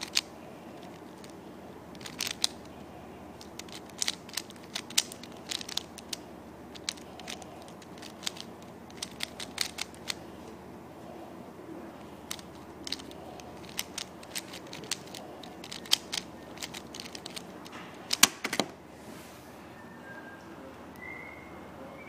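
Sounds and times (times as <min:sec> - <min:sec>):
speedcube plastic clicks: 0:00.0 - 0:10.2, 0:12.0 - 0:18.7.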